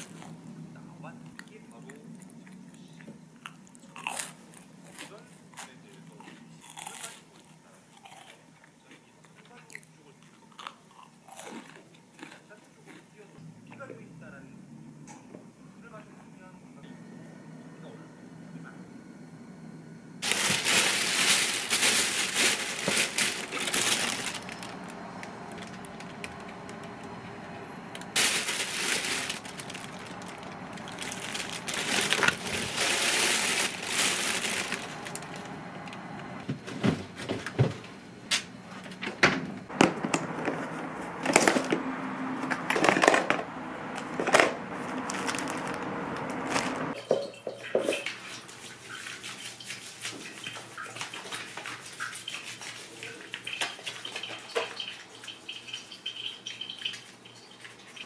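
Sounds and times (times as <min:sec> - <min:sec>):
plastic bag rustling: 0:00.0 - 0:00.5, 0:20.2 - 0:37.7, 0:44.2 - 0:47.0.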